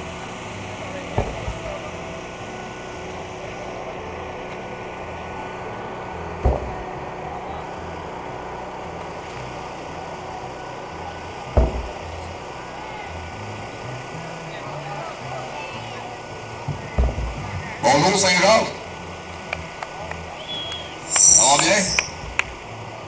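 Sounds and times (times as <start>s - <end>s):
steady background noise: 0.0s - 23.0s
heavy tire landing thud: 1.1s - 1.8s, 6.4s - 7.0s, 11.5s - 12.1s, 16.6s - 17.8s.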